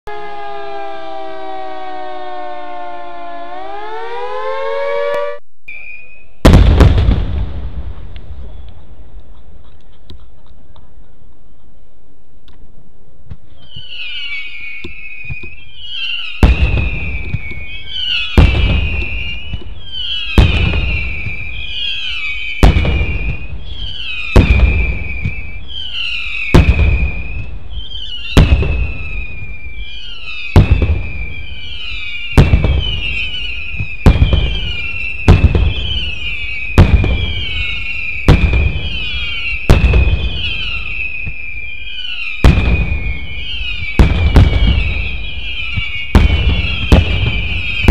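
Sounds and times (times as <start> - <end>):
firework whistles falling in pitch: 0.1 - 6.5, 13.5 - 47.9
firework bangs: 5.8 - 9.1, 13.6 - 47.9.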